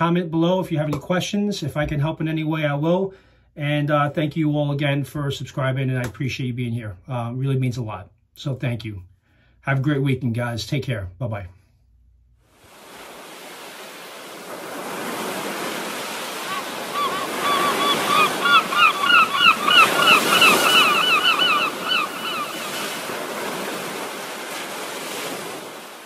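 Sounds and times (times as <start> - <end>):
ocean surf washing: 12.5 - 26.0
gull crying: 16.4 - 23.1.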